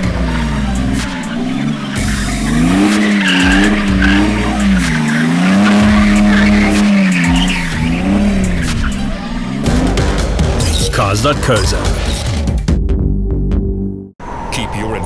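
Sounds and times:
tyres squealing on concrete: 0:00.0 - 0:11.0
diesel engine revving hard: 0:00.0 - 0:12.3.

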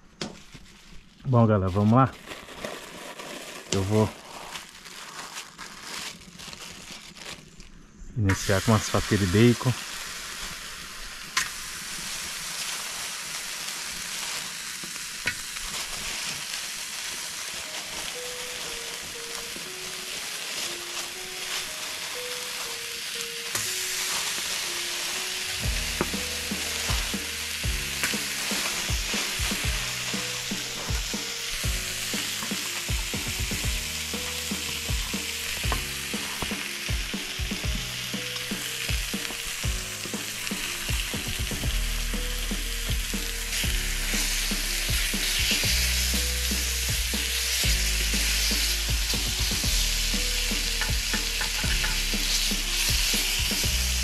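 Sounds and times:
bacon sizzling in a pan: 0:00.0 - 0:07.7, 0:08.3 - 0:54.0
background music with bass: 0:25.6 - 0:54.0.

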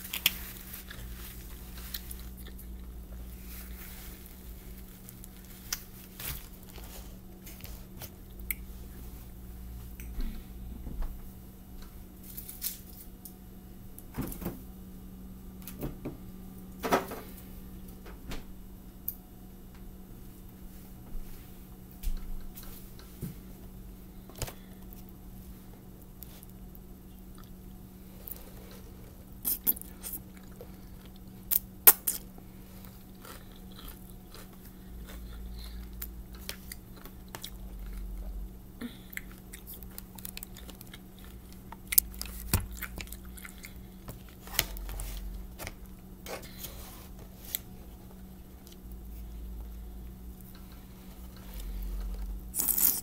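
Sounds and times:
chewing spaghetti: 0:00.0 - 0:08.6, 0:26.4 - 0:44.4
steady low hum: 0:00.0 - 0:53.0.

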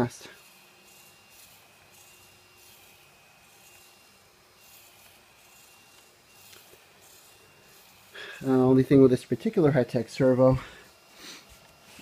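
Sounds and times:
rubbing and handling noise: 0:10.7 - 0:12.0.

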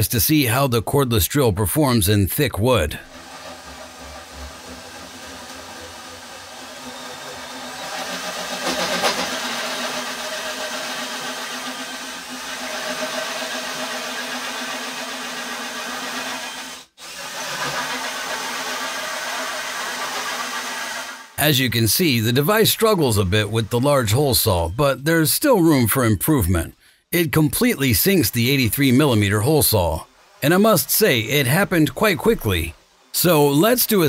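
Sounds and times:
drill with hole saw cutting wood: 0:03.0 - 0:21.4, 0:22.3 - 0:24.8, 0:28.4 - 0:34.0.

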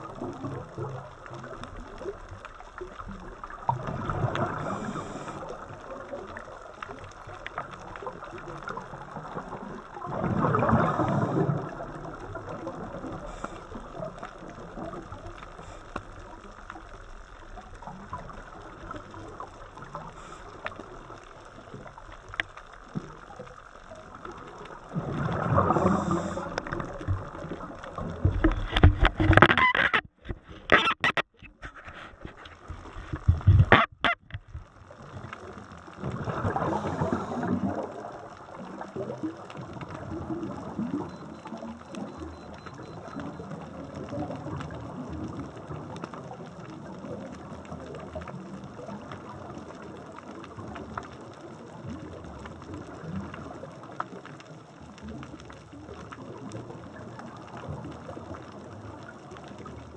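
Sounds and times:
bubbles gurgling underwater: 0:00.0 - 0:28.8, 0:32.9 - 0:59.9
underwater hiss: 0:04.3 - 0:05.7, 0:10.6 - 0:11.9, 0:25.2 - 0:26.8, 0:36.4 - 0:37.9.

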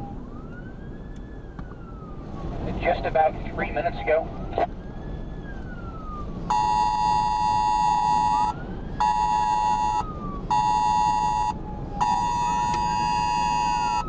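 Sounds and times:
distant siren wailing: 0:00.0 - 0:14.0
buzzy electronic alarm tone: 0:06.5 - 0:14.0.

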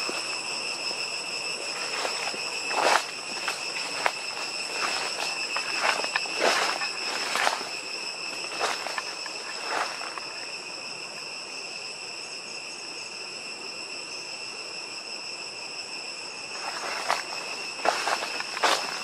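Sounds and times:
insect chorus: 0:00.0 - 0:19.0
footsteps crunching through dry leaves: 0:01.5 - 0:10.3, 0:16.6 - 0:19.0.

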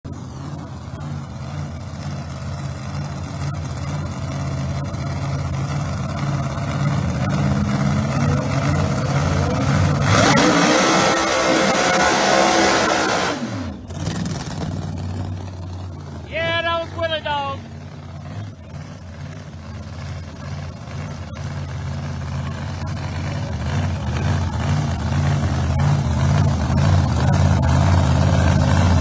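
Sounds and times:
drag car engine revving: 0:00.1 - 0:29.0
car launching at full throttle: 0:07.2 - 0:15.4.

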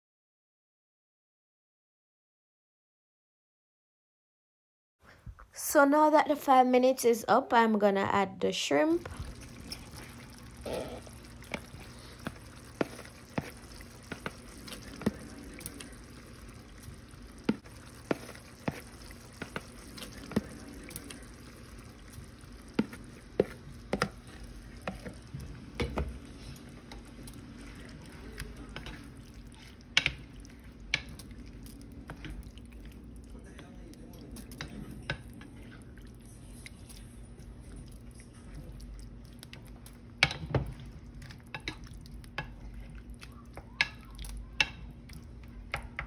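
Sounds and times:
curry simmering in a pan: 0:09.0 - 0:46.0
spatula tapping a pan: 0:17.4 - 0:20.5, 0:22.6 - 0:24.2, 0:24.8 - 0:25.2, 0:25.8 - 0:26.2, 0:43.6 - 0:44.9.

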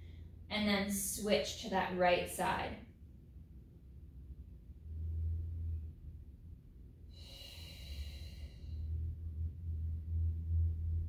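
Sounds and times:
low steady hum: 0:00.0 - 0:11.0
person breathing: 0:07.1 - 0:09.1.

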